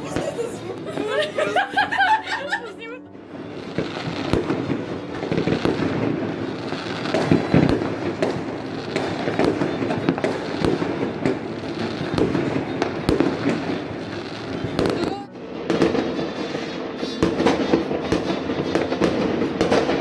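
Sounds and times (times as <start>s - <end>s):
fireworks crackling and banging: 0.0s - 20.0s.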